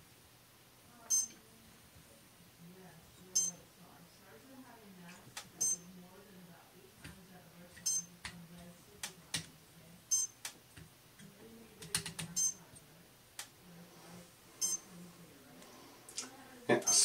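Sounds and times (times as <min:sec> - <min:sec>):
faint low hum: 0:00.0 - 0:17.0
hands clicking and tapping: 0:09.0 - 0:09.5, 0:10.4 - 0:12.3.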